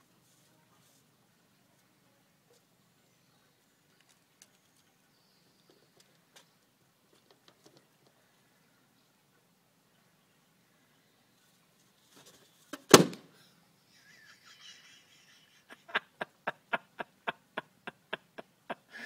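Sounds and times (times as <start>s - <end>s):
balloon popping: 12.9s - 13.3s.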